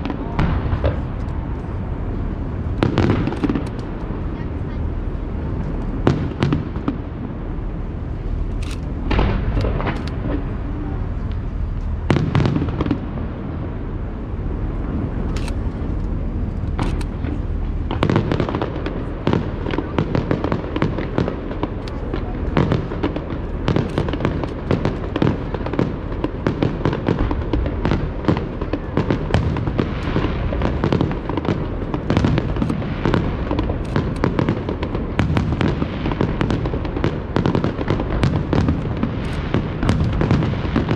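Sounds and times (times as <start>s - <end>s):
fireworks shells booming: 0.0s - 13.8s, 14.7s - 40.9s
rapid bangs and crackling: 16.7s - 40.9s.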